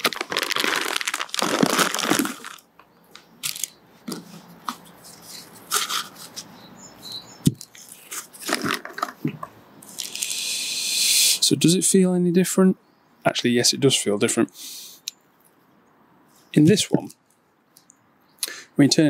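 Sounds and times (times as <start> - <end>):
plastic and paper crinkling: 0.0 - 6.5, 7.6 - 10.2.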